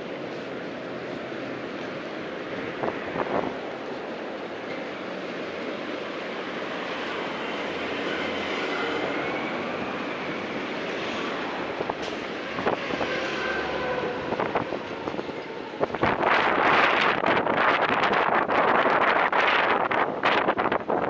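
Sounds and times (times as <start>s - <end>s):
street traffic noise: 0.0s - 21.0s
wind on microphone: 2.6s - 3.6s, 8.7s - 21.0s.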